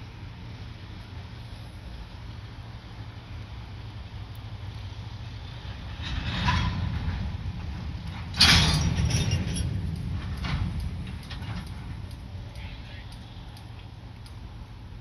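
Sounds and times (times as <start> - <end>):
freight train low rumble: 0.0 - 15.0
rattling clatter: 5.6 - 12.2
loud metallic jolt: 5.9 - 11.7.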